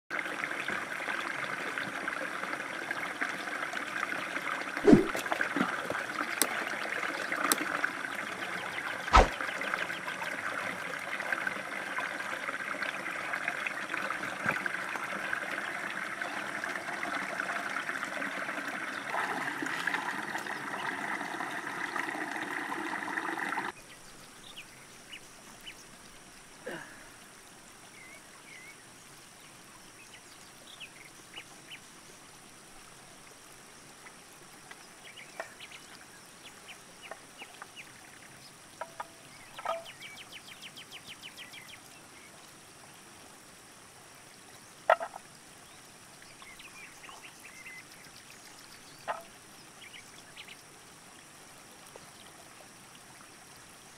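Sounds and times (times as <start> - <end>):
rocky stream running: 0.1 - 30.0
sharp splashes: 4.8 - 5.7, 9.1 - 9.4.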